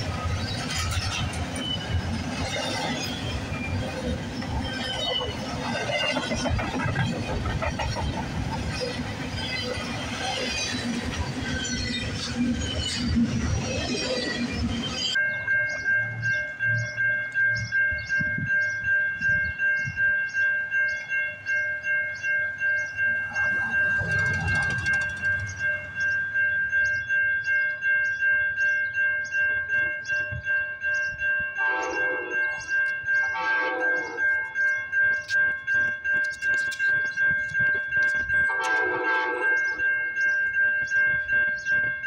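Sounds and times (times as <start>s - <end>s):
railroad warning bell ringing: 0.0s - 42.0s
train horn blasts: 31.6s - 32.4s, 33.3s - 34.2s, 38.5s - 39.6s.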